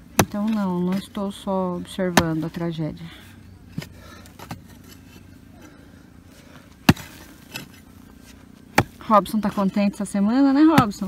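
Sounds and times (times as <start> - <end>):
pick mattock striking stony soil: 0.0 - 1.2, 2.0 - 2.6, 6.8 - 10.0, 10.6 - 11.0.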